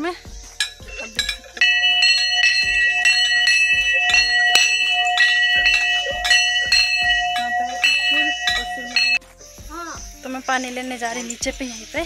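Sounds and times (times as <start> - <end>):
temple bell ringing: 0.7 - 9.2.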